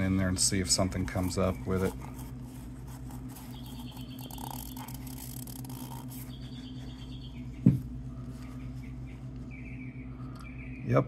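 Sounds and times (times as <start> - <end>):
steady low hum: 0.0 - 11.0
rag scrubbing inside steel can: 0.6 - 6.5.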